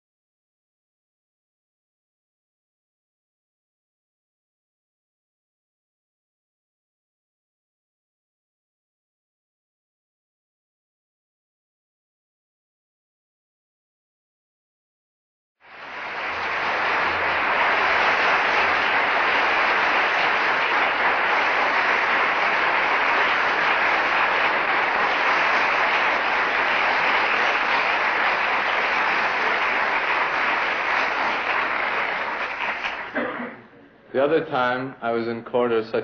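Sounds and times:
audience applauding: 15.6 - 33.6.

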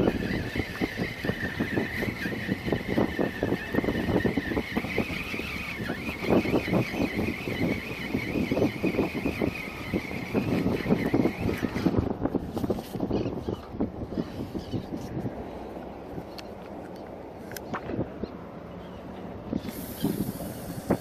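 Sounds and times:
electric motor whining: 0.0 - 12.2.

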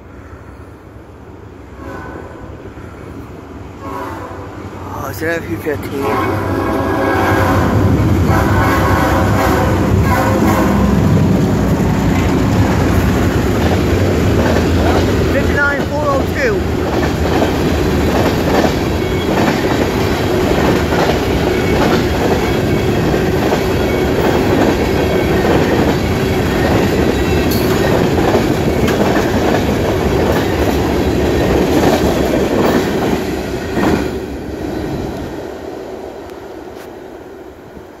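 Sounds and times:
freight train wheels clattering: 9.9 - 35.1.

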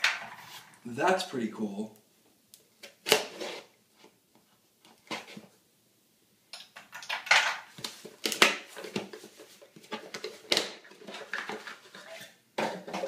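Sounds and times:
packaging rustling and clattering: 6.8 - 13.0.

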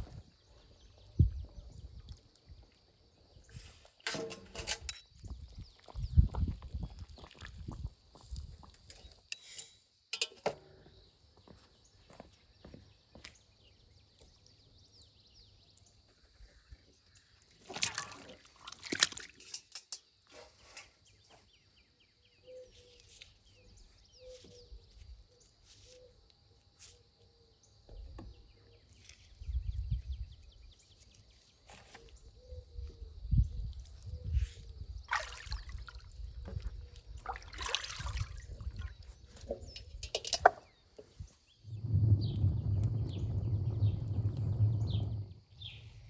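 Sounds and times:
birds calling: 20.8 - 26.2
low rumbling: 41.6 - 45.8.

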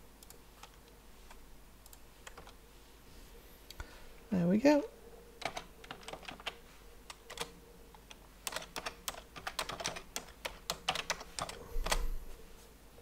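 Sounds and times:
computer keyboard typing: 0.2 - 2.6, 5.4 - 12.0.

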